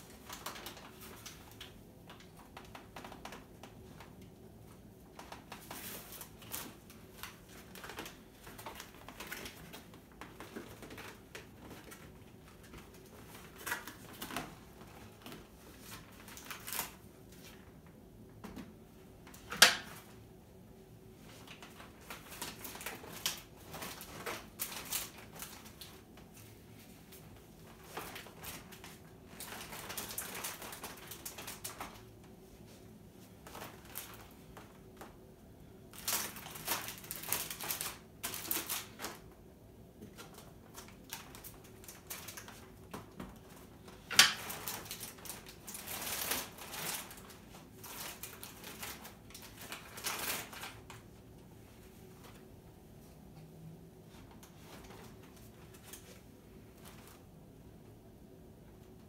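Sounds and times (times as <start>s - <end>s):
grocery packaging and bag rustling: 21.2s - 35.2s, 35.9s - 39.3s, 40.1s - 51.1s.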